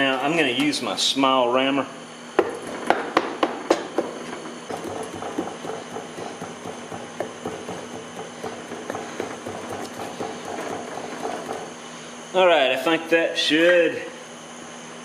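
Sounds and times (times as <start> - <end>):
hand rammer knocking: 4.7 - 11.7.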